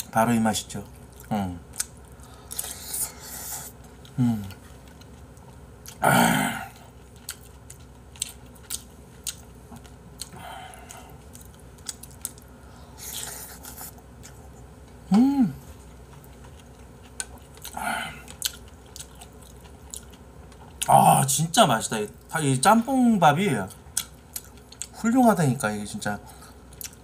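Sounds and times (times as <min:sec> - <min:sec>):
person humming mm: 0:04.2 - 0:04.6, 0:15.1 - 0:15.7
chewing and mouth noises: 0:06.7 - 0:15.0, 0:15.7 - 0:20.9, 0:23.6 - 0:25.0, 0:26.3 - 0:27.0.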